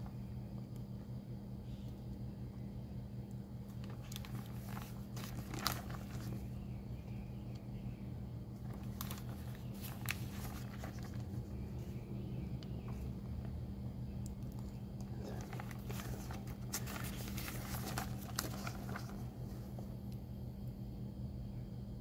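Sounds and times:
low hum: 0:00.0 - 0:22.0
paper pages rustling: 0:03.7 - 0:06.5, 0:08.6 - 0:12.1, 0:14.5 - 0:19.9.

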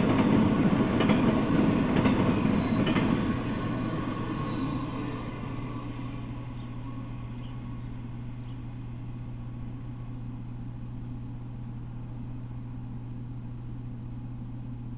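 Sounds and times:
freight train passing: 0:00.0 - 0:10.2
steady low hum: 0:00.0 - 0:14.9
faint outdoor noise: 0:00.1 - 0:14.9.

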